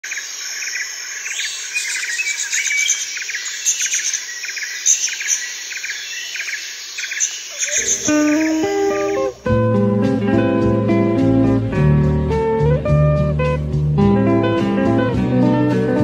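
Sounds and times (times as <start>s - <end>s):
birds chirping: 0.0s - 9.5s
high-pitched insect drone: 7.0s - 9.4s.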